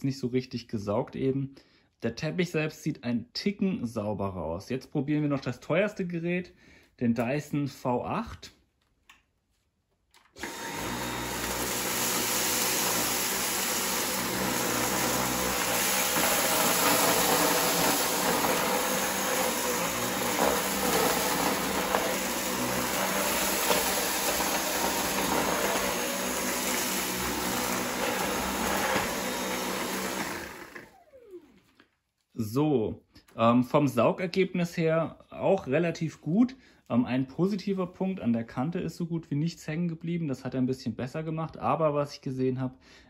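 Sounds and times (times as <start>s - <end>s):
stick vacuum running: 10.4s - 31.6s.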